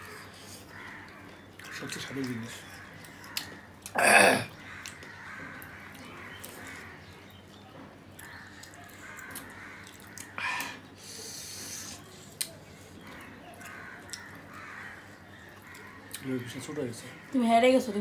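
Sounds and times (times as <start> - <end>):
wet chewing and lip-smacking: 4.7 - 11.0, 11.7 - 14.5
sucking hiss: 10.4 - 12.0.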